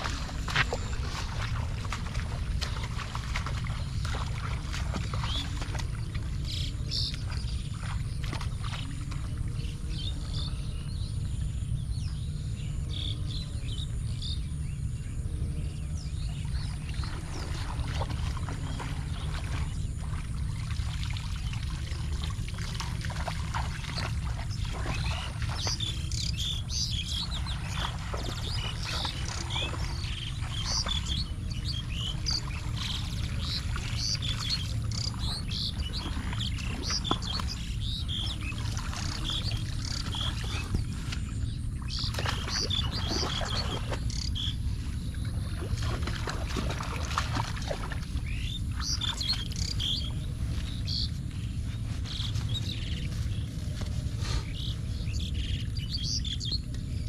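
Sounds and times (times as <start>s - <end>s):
rain low rumble: 0.0s - 12.7s, 48.2s - 56.4s.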